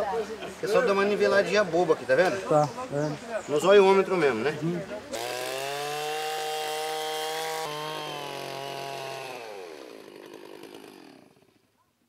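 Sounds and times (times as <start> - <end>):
chainsaw cutting a log: 5.1 - 11.6.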